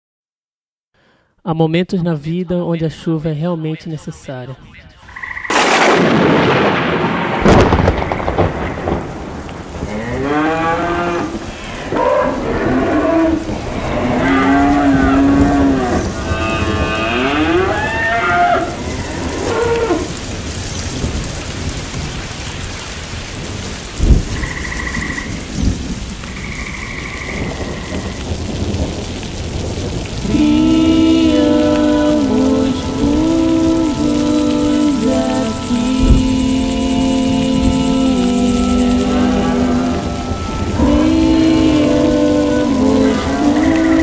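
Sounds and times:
steady rain: 5.0s - 44.0s
thunderclap: 5.2s - 44.0s
cattle mooing: 9.9s - 20.1s.

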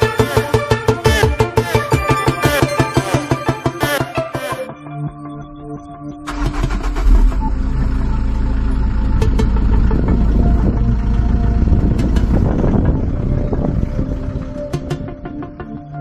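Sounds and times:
car exhaust rumble: 6.3s - 15.6s.

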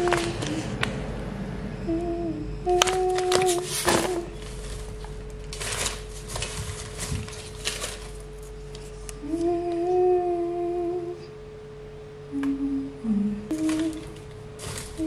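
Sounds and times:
person humming: 0.0s - 0.9s, 1.8s - 4.5s, 9.1s - 11.4s, 12.3s - 15.0s
plastic packaging rustling: 0.0s - 1.0s, 2.7s - 9.1s, 13.5s - 15.0s.

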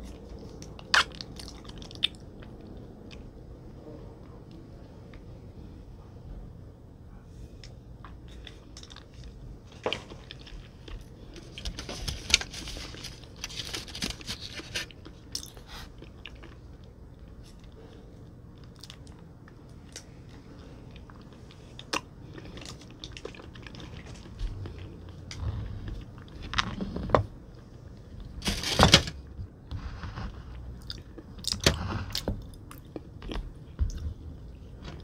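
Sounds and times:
person chewing crunchy food: 0.0s - 3.2s, 8.3s - 27.1s, 29.8s - 34.4s.

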